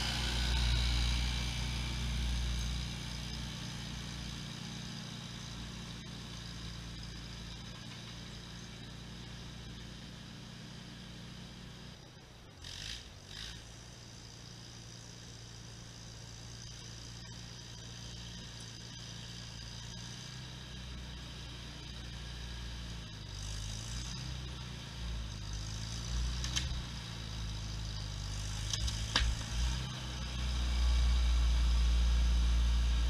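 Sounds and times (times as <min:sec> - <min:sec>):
tractor engine passing by: 0:00.0 - 0:03.8.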